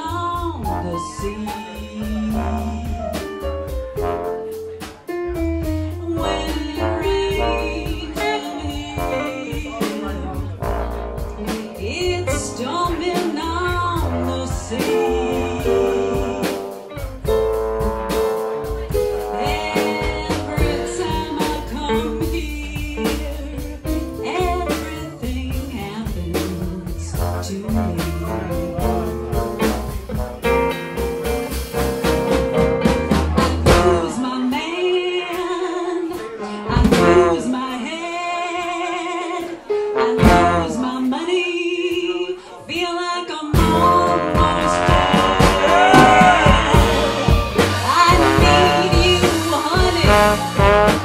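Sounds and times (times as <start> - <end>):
upright bass: 0.0 - 34.4, 36.7 - 37.7, 39.8 - 41.0, 43.5 - 51.0
drums: 0.0 - 38.1, 39.3 - 51.0.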